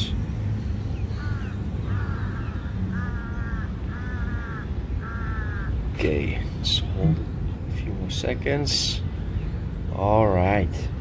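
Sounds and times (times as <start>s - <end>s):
bird calling: 0.0s - 7.3s
low background rumble: 0.0s - 11.0s.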